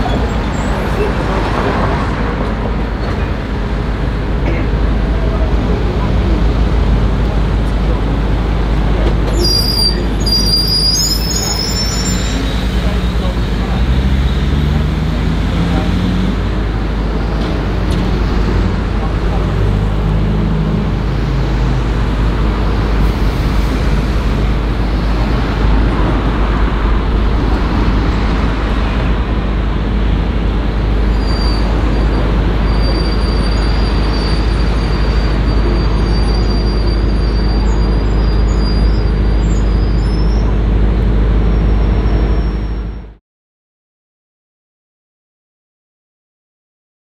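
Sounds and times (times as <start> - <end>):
street traffic rumble: 0.0 - 43.2
thin high squeal: 9.4 - 12.8.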